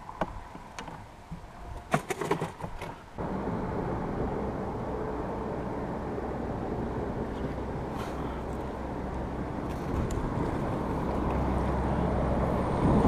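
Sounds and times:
steady low rumbling: 3.2 - 13.0.

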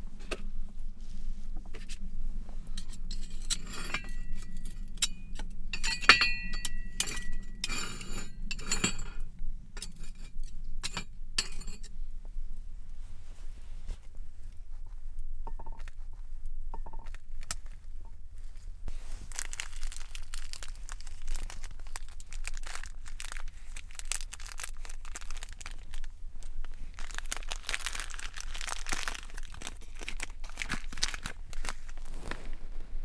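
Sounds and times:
foil crinkling and tearing: 18.9 - 26.1, 26.7 - 32.6.

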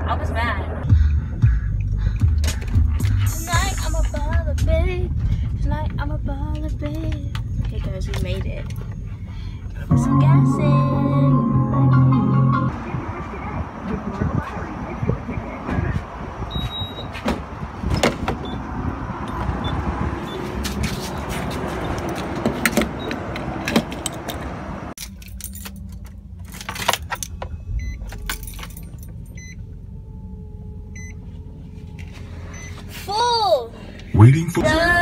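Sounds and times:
traffic noise: 0.0 - 35.0
keys jangling: 25.0 - 27.4, 28.1 - 29.4
faint short beeps: 32.5 - 32.9.

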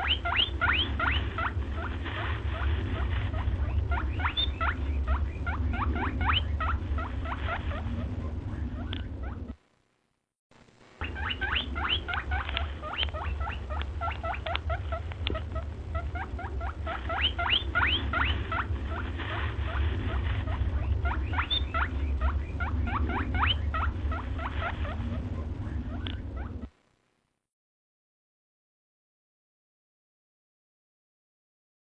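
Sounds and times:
small animal squeaking: 0.0 - 9.6, 11.0 - 26.7
low hum: 0.0 - 27.4.

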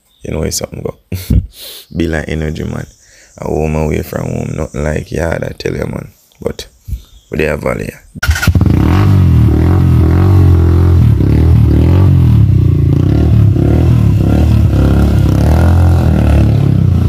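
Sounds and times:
motorcycle engine running: 8.2 - 17.0.

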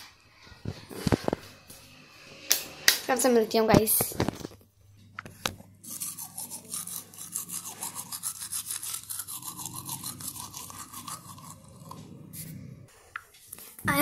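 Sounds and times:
toothbrush scrubbing teeth: 5.8 - 12.6.

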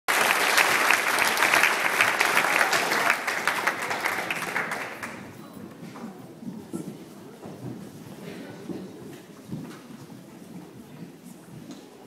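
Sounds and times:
audience applauding: 0.1 - 5.2
faint scattered voices: 2.0 - 12.0.

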